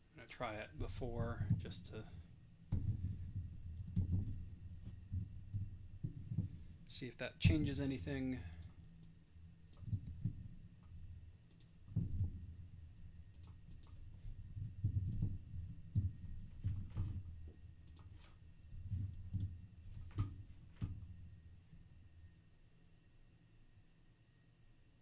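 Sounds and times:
faint steady hum: 0:00.0 - 0:25.0
keyboard keystrokes: 0:13.3 - 0:15.3.

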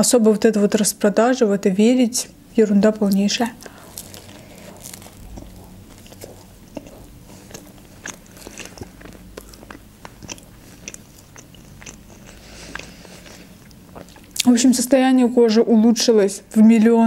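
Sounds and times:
chewing and biting sandwich: 0:03.6 - 0:14.4.

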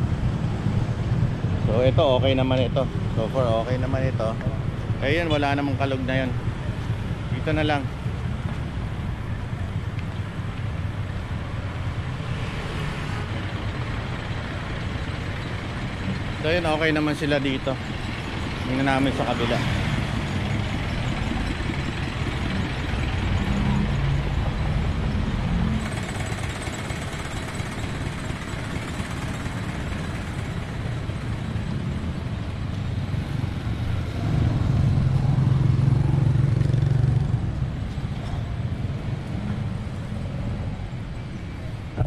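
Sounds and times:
traffic rumble: 0:00.0 - 0:42.0
vehicle engine passing: 0:12.0 - 0:28.1, 0:29.3 - 0:41.2.

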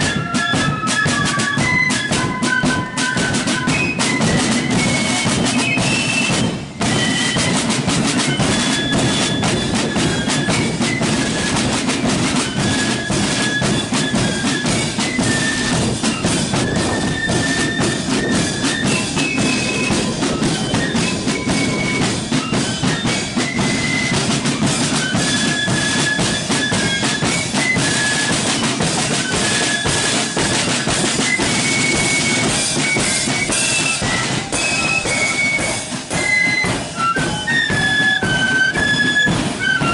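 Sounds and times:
flutes playing melody: 0:00.0 - 0:39.9
side drums: 0:00.0 - 0:39.9.

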